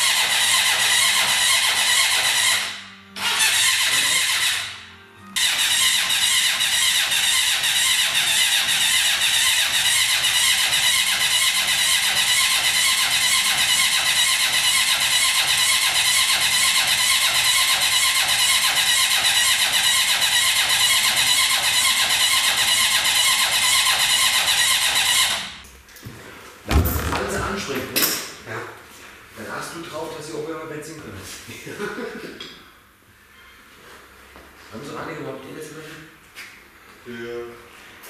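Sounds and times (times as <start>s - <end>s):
motorcycle starter cranking engine: 0.0s - 4.8s, 5.4s - 25.4s.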